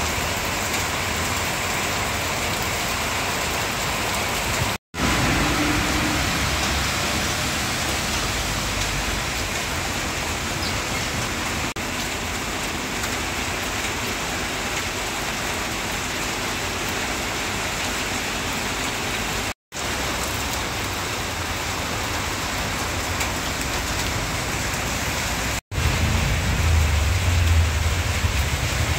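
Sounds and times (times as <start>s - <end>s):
heavy rain on road and vehicles: 0.0s - 28.9s
passing traffic rumble: 5.0s - 11.7s, 22.1s - 28.9s.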